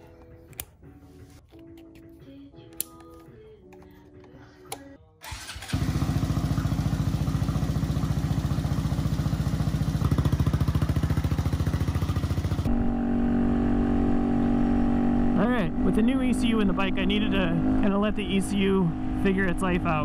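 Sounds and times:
motorcycle engine starting and idling: 5.2 - 20.0
motorcycle engine riding on road: 5.3 - 20.0.

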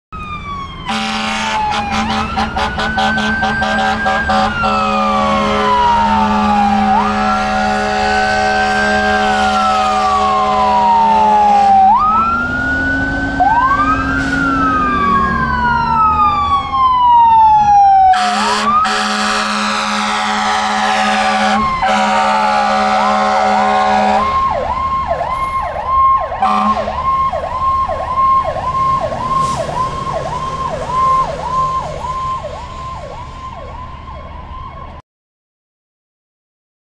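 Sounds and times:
ambulance sirens wailing: 0.1 - 35.0
siren yelp: 0.2 - 35.0
air horn blasts: 0.9 - 11.8, 18.1 - 24.4, 26.4 - 27.1.

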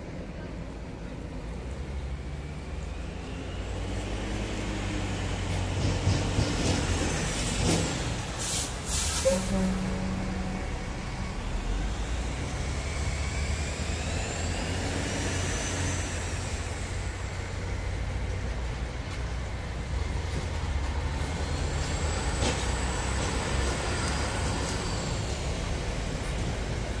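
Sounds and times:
diesel engines rumbling: 0.0 - 27.0
heavy trucks driving past: 0.0 - 27.0
high whine: 9.2 - 16.9.

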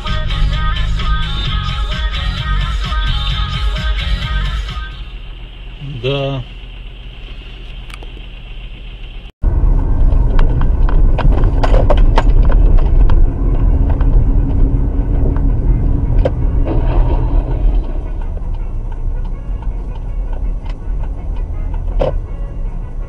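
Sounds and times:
car engine and tyre rumble: 0.0 - 23.0.

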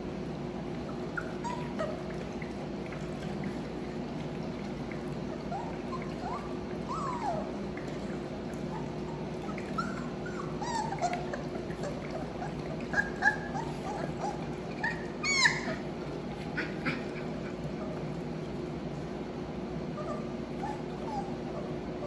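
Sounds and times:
puppies squeaking and whimpering: 0.8 - 2.5, 5.3 - 7.8, 8.7 - 18.0, 20.0 - 22.0.

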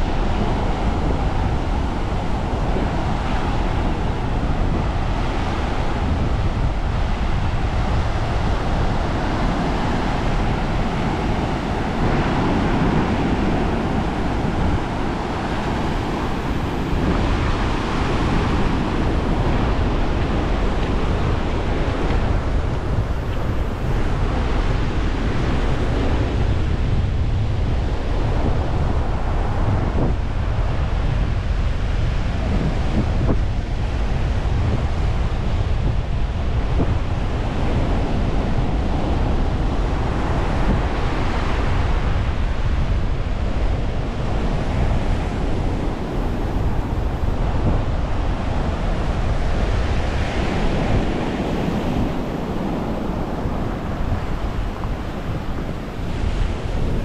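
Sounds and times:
sea surf washing: 0.0 - 57.0
wind buffeting microphone: 0.0 - 57.0.

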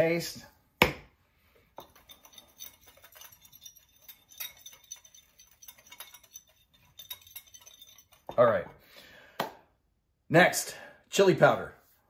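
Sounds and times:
whisk clinking against bowl: 1.8 - 8.4.

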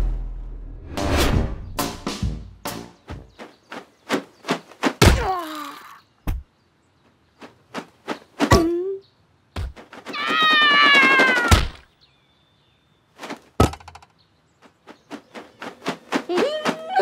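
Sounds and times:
cartoon thuds and whacks: 4.1 - 5.4, 11.1 - 11.8, 13.6 - 14.0
long falling wail: 10.2 - 11.6.

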